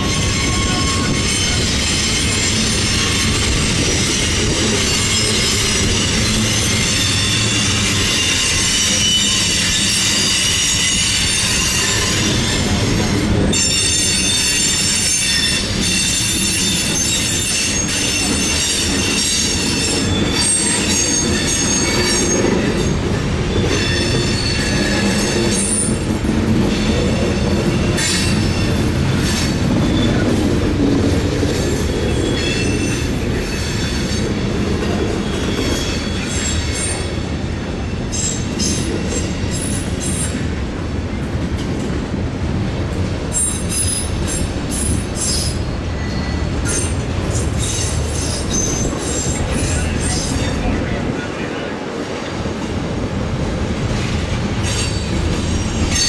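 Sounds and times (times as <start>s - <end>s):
high-pitched wheel squeal: 0.0s - 12.9s, 13.5s - 22.9s, 43.3s - 50.5s
steel wheels rumbling on rail: 0.0s - 56.0s.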